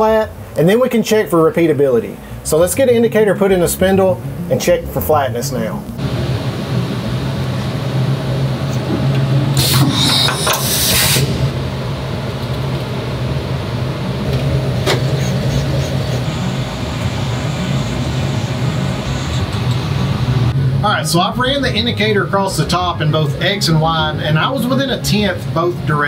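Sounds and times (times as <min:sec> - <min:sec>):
milling machine humming: 0:06.0 - 0:20.6
hiss of air: 0:09.5 - 0:11.6.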